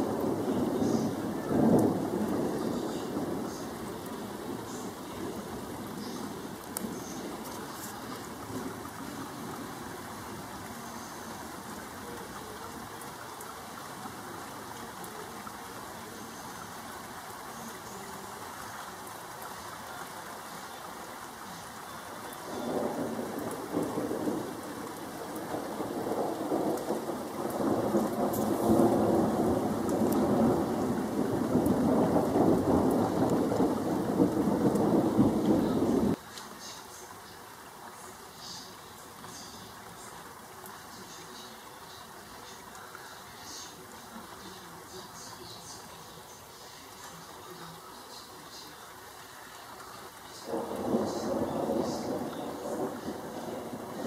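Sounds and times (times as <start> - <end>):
thunder rumbling: 0.0 - 16.1, 22.1 - 36.2, 50.1 - 54.0
steady rain: 0.0 - 54.0.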